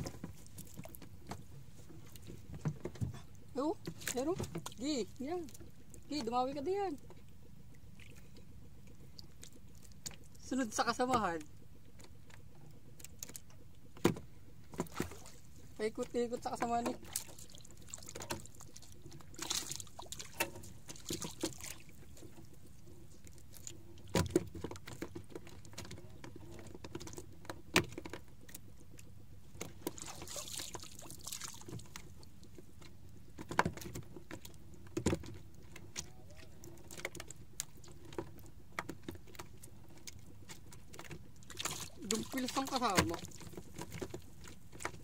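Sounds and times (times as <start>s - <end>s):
water washing against hull: 14.8s - 25.8s, 29.7s - 32.7s, 41.4s - 45.0s.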